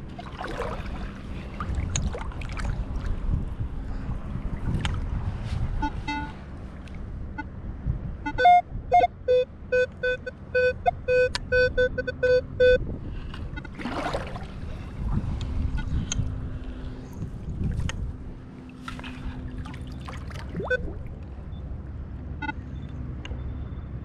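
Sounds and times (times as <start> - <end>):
water splashing: 0.0 - 3.4, 13.6 - 15.3, 17.6 - 21.2
metal detector short beeps: 8.3 - 12.8, 20.6 - 21.0.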